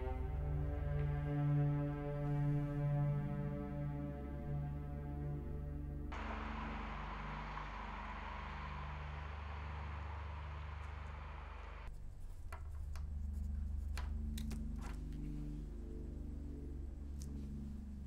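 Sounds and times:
low droning ambient music: 0.0s - 18.0s
night street ambience hiss: 6.1s - 11.9s.

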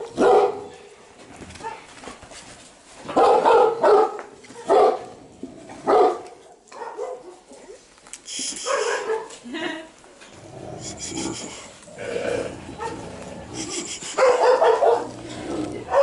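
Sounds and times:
dog barking: 0.1s - 0.7s, 3.1s - 5.1s, 5.8s - 7.5s, 8.7s - 9.4s, 14.2s - 15.2s.

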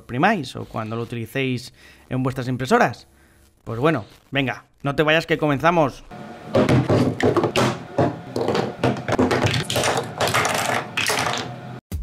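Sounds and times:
plastic parts clattering on wood: 6.6s - 11.5s.

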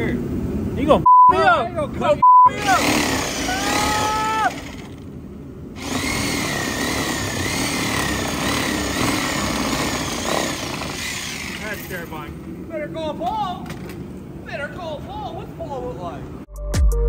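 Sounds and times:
reciprocating saw cutting metal: 2.6s - 5.1s, 5.8s - 12.0s.

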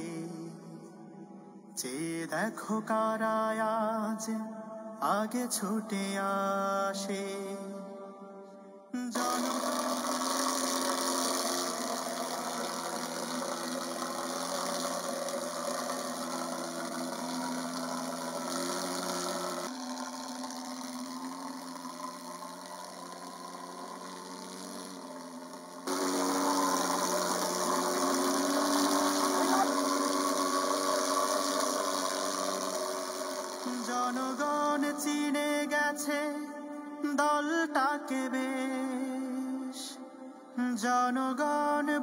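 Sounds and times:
pulse-jet fogging machine droning: 9.2s - 35.4s.

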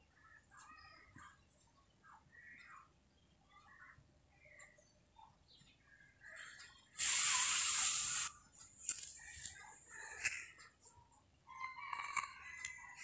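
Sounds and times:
food sizzling in hot oil: 7.0s - 8.3s.

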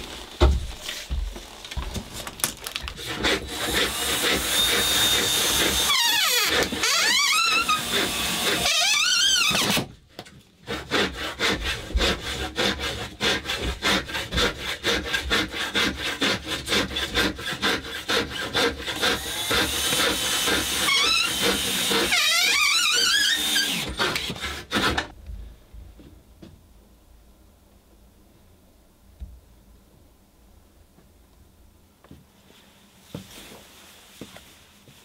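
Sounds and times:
hand saw cutting wood: 2.7s - 9.9s, 10.6s - 25.2s.

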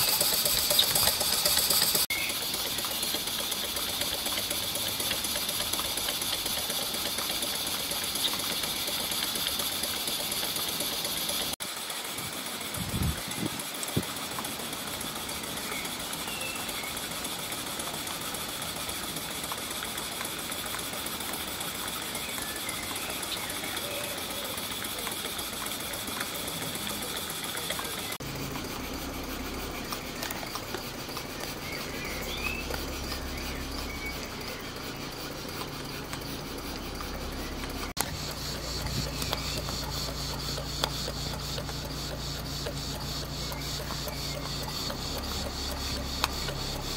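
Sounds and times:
mechanical patter of running gear: 0.0s - 46.9s
steam hissing: 0.0s - 46.9s.

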